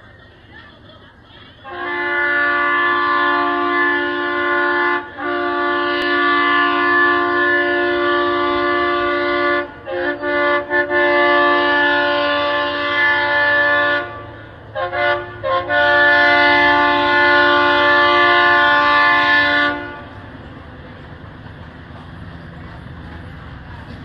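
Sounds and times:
locomotive air horn: 1.6 - 20.4.

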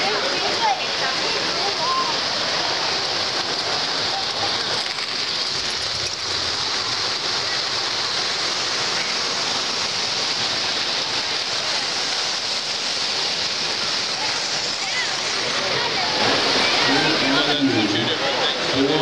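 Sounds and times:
murmur of crowd: 0.0 - 19.0
model trains rolling on metal track: 2.6 - 9.1.

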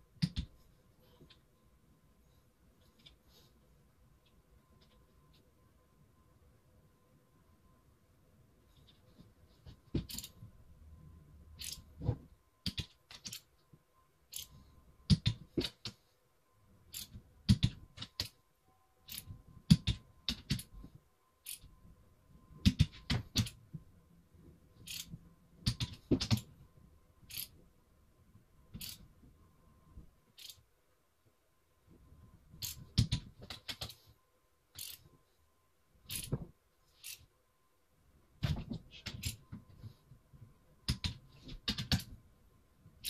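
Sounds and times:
torque wrench clicks: 30.4 - 30.6, 34.8 - 35.0.

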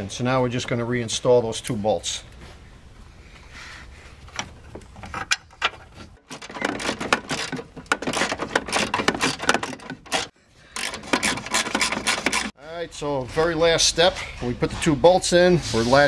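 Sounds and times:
metal scraping: 4.6 - 12.6
hand ratchet clicking: 6.6 - 12.5.

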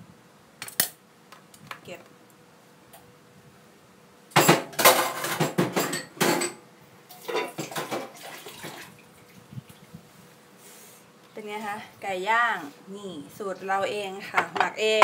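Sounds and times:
metal utensils clattering on board: 4.4 - 6.6.

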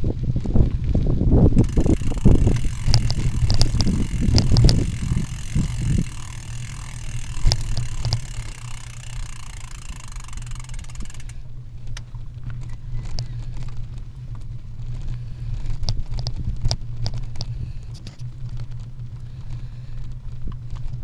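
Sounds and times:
wind buffeting: 0.0 - 11.4
vehicle rumble on gravel track: 0.0 - 21.0
rattles and clicks over bumps: 1.5 - 21.0.

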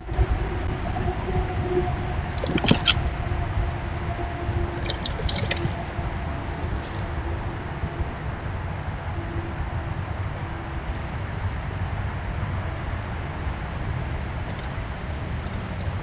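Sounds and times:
low outdoor rumble: 0.0 - 16.0
squirrel rattling metal feeder: 4.8 - 7.4.

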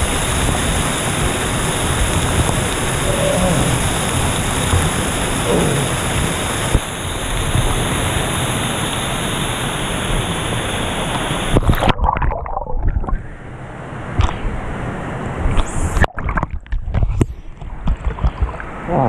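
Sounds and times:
waterfall rushing: 0.0 - 12.0
water sloshing and splashing: 11.1 - 13.4, 15.4 - 19.0.

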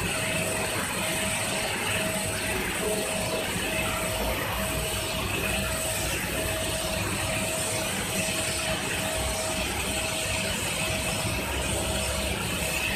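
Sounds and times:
laser cutter hissing: 0.0 - 12.9.

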